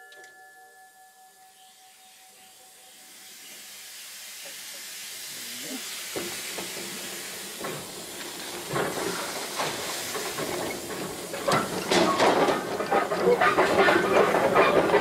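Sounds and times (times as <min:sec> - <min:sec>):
steam hiss: 0:01.9 - 0:15.0
wheels clanking and clicking: 0:06.1 - 0:15.0.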